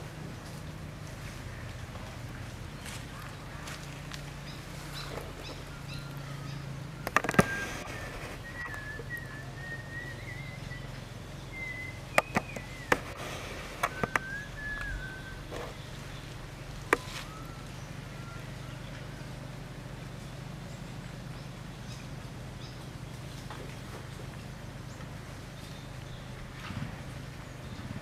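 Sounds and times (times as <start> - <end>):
high whistle-like animal calls: 5.0 - 19.4
sharp clicks: 7.0 - 8.8, 12.1 - 14.9.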